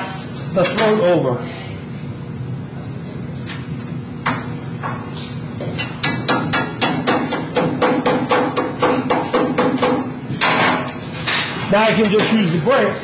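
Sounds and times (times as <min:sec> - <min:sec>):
rubber mallet striking sheet metal: 0:05.8 - 0:10.9.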